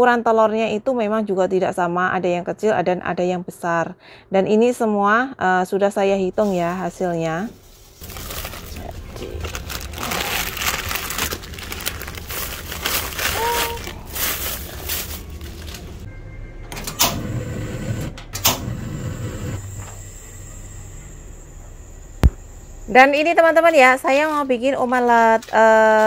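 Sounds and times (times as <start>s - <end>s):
plastic packets rustling: 7.8s - 16.1s.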